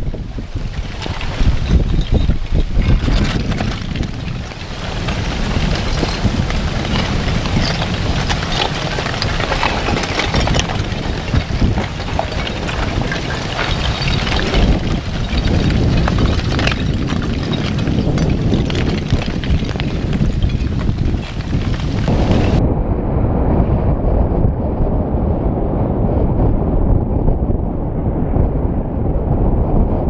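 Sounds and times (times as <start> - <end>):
lava blocks clinking and tumbling: 0.0 - 22.6
low wind rumble on microphone: 0.0 - 30.0.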